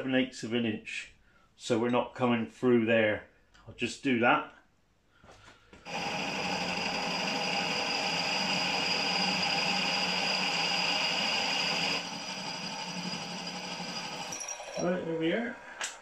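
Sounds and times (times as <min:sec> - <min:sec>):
milling machine drilling: 0:05.9 - 0:16.0.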